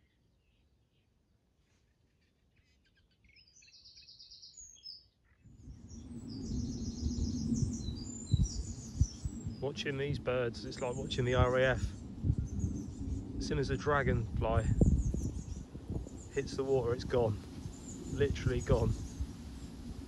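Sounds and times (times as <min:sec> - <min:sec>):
birds chirping and trilling: 0:00.0 - 0:20.0
wind on microphone: 0:05.5 - 0:20.0.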